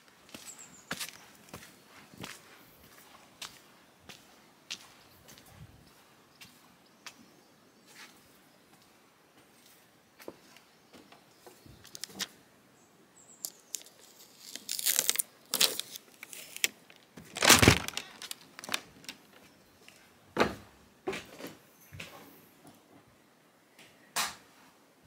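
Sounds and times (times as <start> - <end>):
crackling rustles: 11.4 - 12.4, 13.3 - 20.1.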